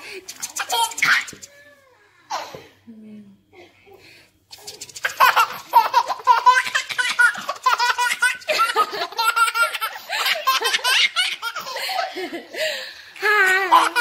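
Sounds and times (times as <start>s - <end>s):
young child laughing: 5.0s - 12.1s.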